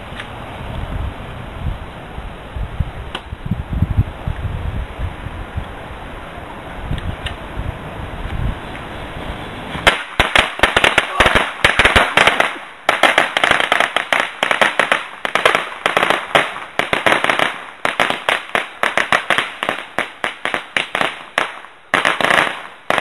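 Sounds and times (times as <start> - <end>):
firecrackers cracking: 9.6 - 23.0.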